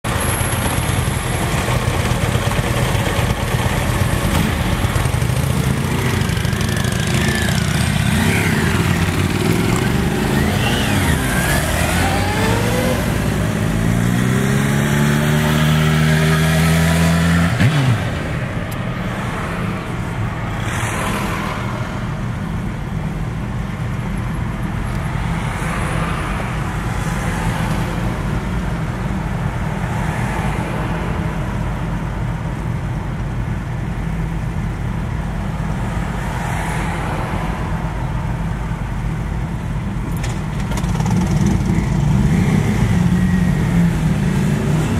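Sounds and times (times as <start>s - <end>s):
road noise: 0.0s - 44.9s
engines running and revving: 0.1s - 32.7s, 35.4s - 44.9s.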